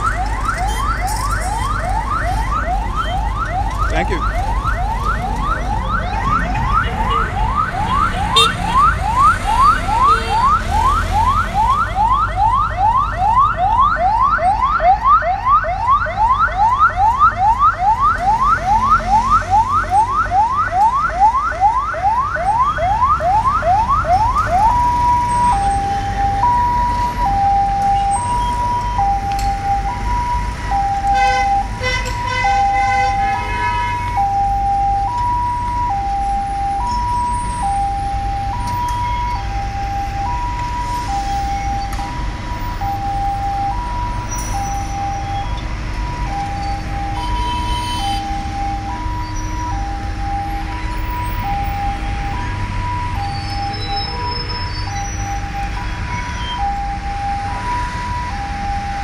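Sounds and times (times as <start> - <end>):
emergency siren: 0.0 - 59.0.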